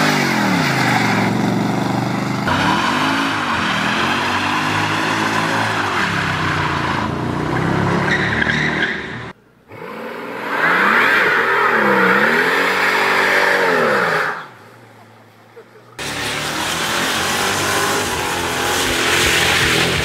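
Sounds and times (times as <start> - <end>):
car engine revving: 0.0 - 14.6, 16.0 - 20.0
tyre squeal: 8.0 - 9.3.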